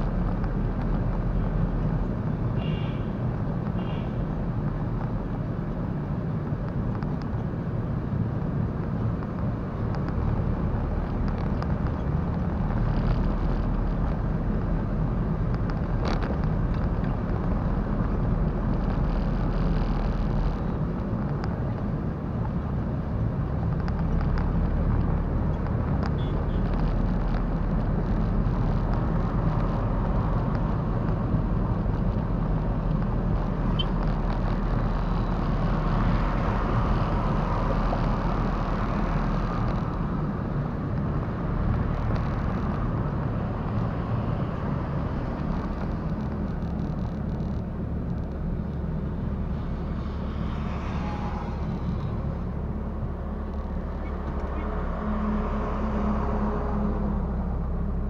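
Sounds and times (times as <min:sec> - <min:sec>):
car driving road noise: 0:00.0 - 0:58.0
low engine drone: 0:29.8 - 0:58.0.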